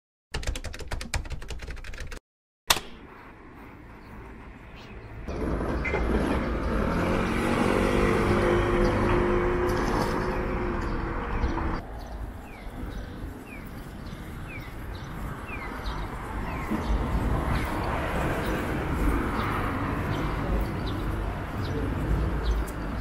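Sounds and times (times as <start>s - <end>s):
distant traffic: 2.7s - 23.0s
bird chirping: 3.0s - 7.1s, 10.8s - 18.6s.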